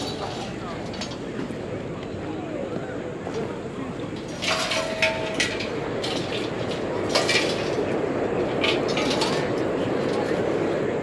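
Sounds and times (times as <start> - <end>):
crowd murmur: 0.0 - 11.0
metal clinks and clatters: 4.2 - 7.9, 8.5 - 10.3.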